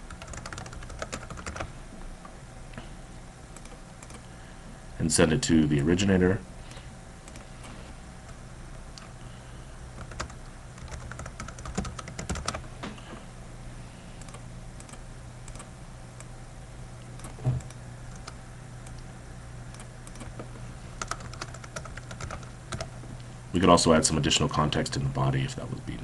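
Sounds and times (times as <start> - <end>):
computer keyboard typing: 0.0 - 1.7, 3.6 - 4.2, 10.0 - 12.6, 17.2 - 19.0, 19.7 - 20.4, 21.0 - 22.9
steady low hum: 0.0 - 26.0.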